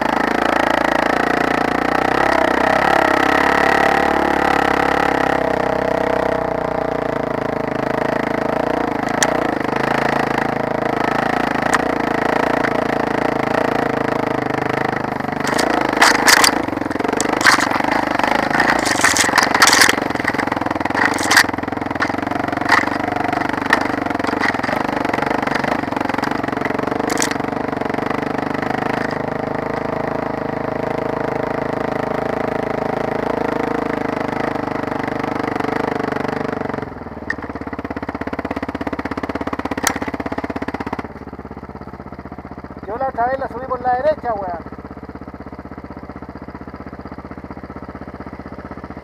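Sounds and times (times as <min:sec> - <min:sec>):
dirt bike engine running: 0:00.0 - 0:49.0
branches striking bike: 0:09.0 - 0:09.5, 0:11.5 - 0:13.1, 0:15.0 - 0:27.6, 0:28.6 - 0:29.8, 0:39.2 - 0:41.2.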